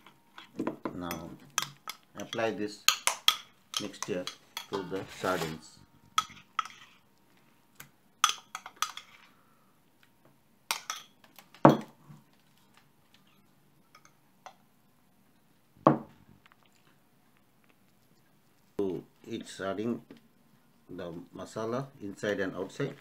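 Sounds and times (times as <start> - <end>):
bowls clinking and knocking: 0.0 - 7.0.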